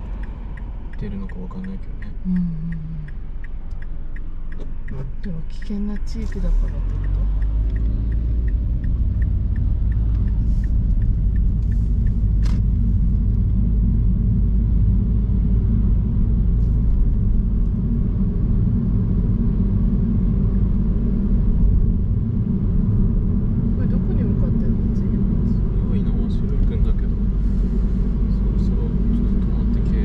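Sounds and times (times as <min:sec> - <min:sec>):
turn signal ticking: 0:00.0 - 0:13.9
road rumble and tyre noise: 0:00.0 - 0:30.0.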